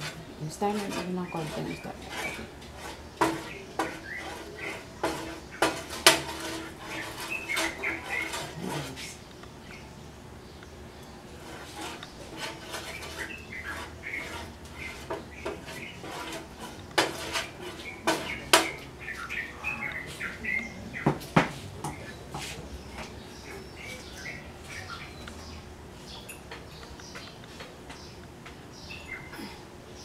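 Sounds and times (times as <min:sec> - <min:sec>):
utensils and containers clattering: 0:00.0 - 0:09.2, 0:11.4 - 0:19.0.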